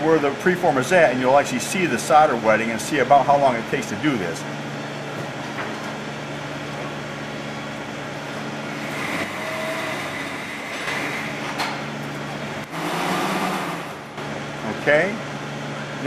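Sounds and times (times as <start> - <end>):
fume extractor humming: 0.0 - 16.0
high-pitched soldering unit hum: 6.4 - 16.0.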